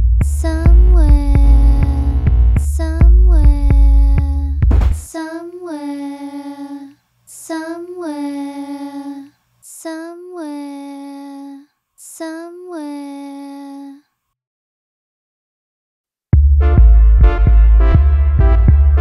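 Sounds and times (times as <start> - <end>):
deep bass beat: 0.0 - 5.1, 16.4 - 19.0
high singing voice: 0.3 - 14.1.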